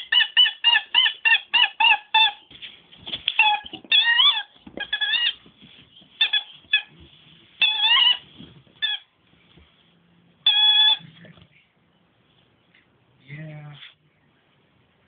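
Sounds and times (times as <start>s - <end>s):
dog whining squeakily: 0.0s - 2.5s, 3.3s - 5.5s, 6.2s - 7.0s, 7.6s - 9.1s, 10.4s - 11.2s.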